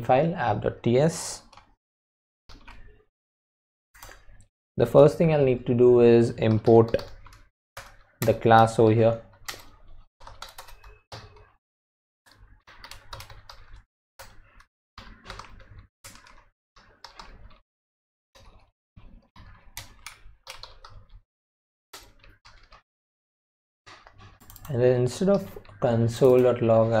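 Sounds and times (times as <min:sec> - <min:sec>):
computer keyboard typing: 0:01.4 - 0:01.7, 0:02.5 - 0:03.0, 0:06.5 - 0:11.6, 0:12.3 - 0:17.6, 0:19.4 - 0:21.2, 0:22.0 - 0:22.8, 0:24.0 - 0:26.6.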